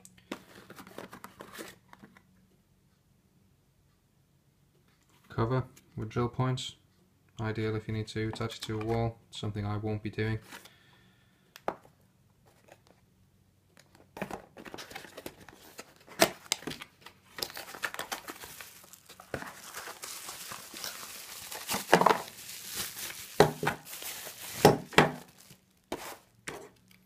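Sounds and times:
plastic packaging crinkling: 0:13.9 - 0:27.0.

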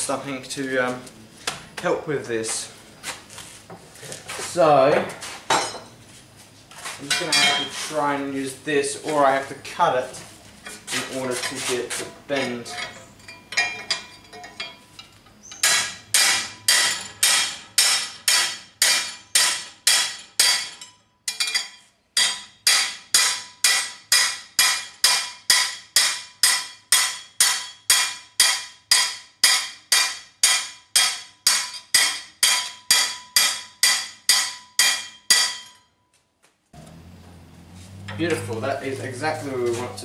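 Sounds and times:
hammer ringing on steel: 0:15.6 - 0:35.9.

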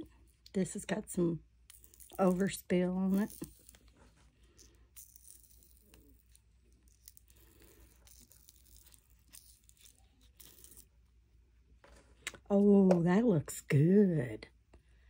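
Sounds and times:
silicone mold peeling and rubbing: 0:01.7 - 0:11.1.

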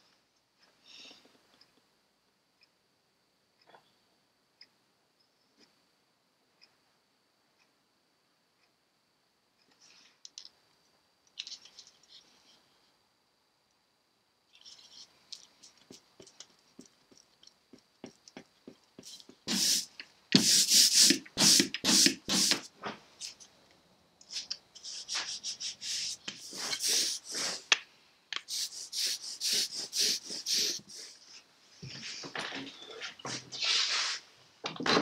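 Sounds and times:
ink roller rasping: 0:24.3 - 0:27.6.

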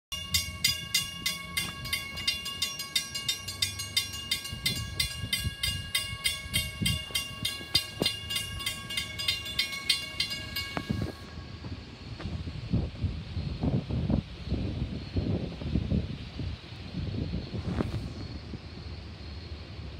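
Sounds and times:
railroad crossing bell ringing: 0:00.1 - 0:12.0.

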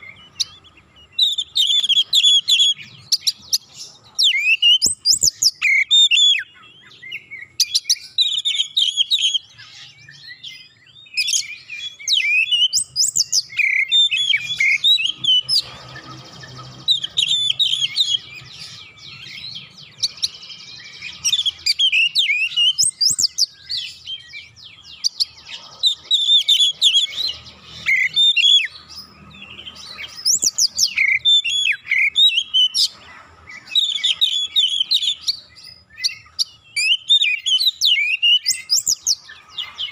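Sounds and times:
bird singing whistles and chatter: 0:00.0 - 0:39.9.

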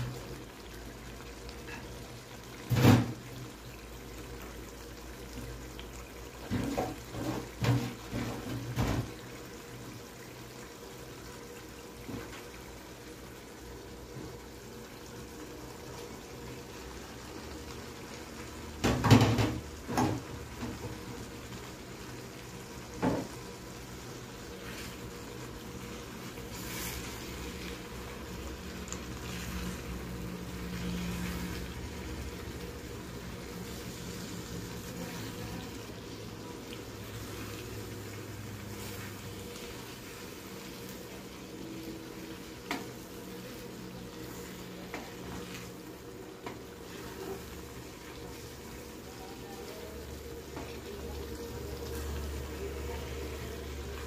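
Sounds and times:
curry sizzling in a pan: 0:00.0 - 0:54.0
wooden spatula scraping a pan: 0:24.4 - 0:25.3, 0:25.9 - 0:28.0, 0:29.0 - 0:32.0, 0:38.6 - 0:41.0.

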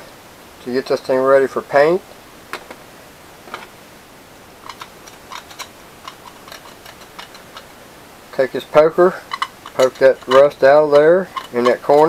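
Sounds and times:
metal tools clicking: 0:04.6 - 0:07.7, 0:08.6 - 0:12.0.

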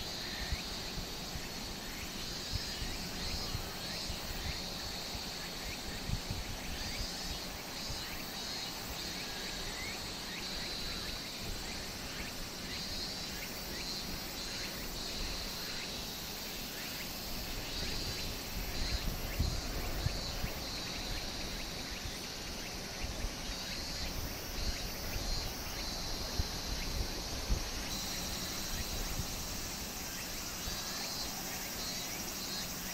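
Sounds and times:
insects buzzing: 0:00.0 - 0:32.9.

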